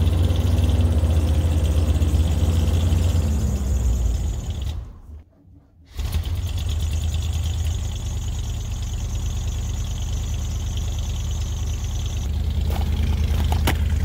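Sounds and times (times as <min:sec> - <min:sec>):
engine idling low rumble: 0:06.3 - 0:14.0.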